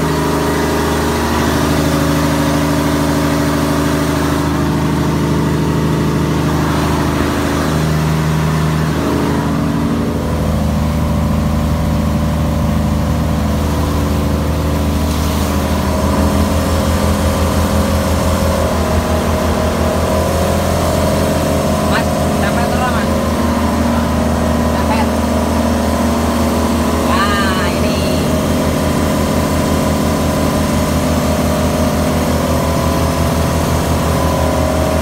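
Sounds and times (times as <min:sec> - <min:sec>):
diesel engine drone: 0:00.0 - 0:35.0
low throbbing beat: 0:15.6 - 0:27.0.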